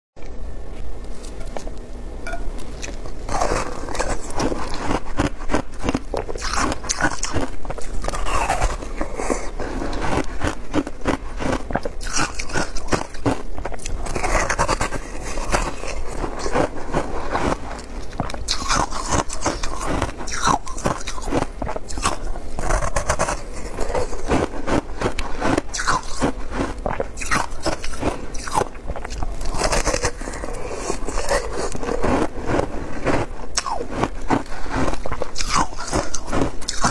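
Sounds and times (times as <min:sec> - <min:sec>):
crunching ice chewing: 0:02.7 - 0:36.9.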